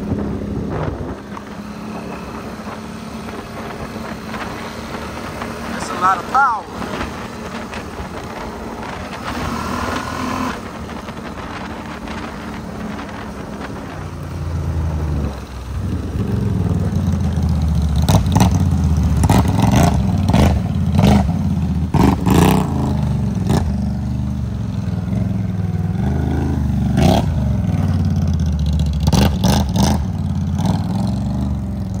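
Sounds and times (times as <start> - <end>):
atv engine revving: 0.0 - 32.0.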